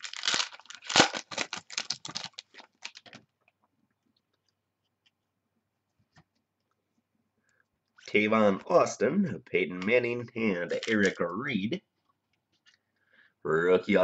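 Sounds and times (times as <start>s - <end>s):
foil wrapper crinkling: 0.0s - 3.3s, 10.6s - 11.2s.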